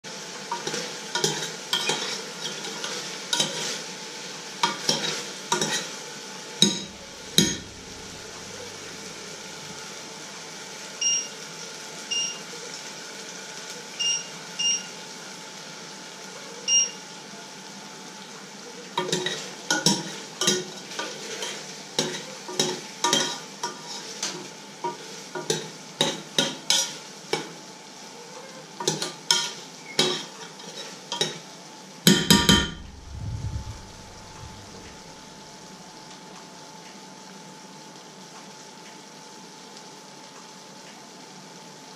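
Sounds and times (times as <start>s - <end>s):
short electronic beeps: 11.0s - 11.3s.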